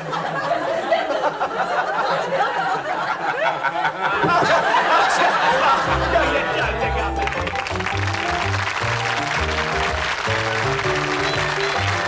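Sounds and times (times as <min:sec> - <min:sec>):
studio audience laughing: 0:00.0 - 0:08.2.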